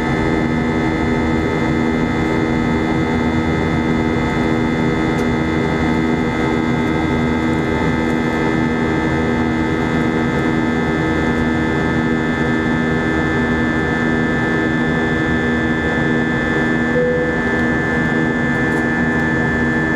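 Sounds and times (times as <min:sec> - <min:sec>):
jet engine noise: 0:00.0 - 0:19.9
steady humming tones: 0:16.7 - 0:19.9.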